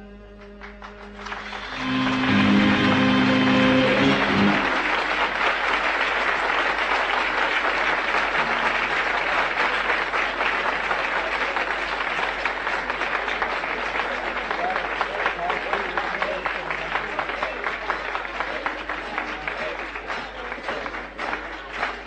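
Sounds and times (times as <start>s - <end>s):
audience applauding: 0.6s - 22.0s
ensemble final note: 1.2s - 5.4s.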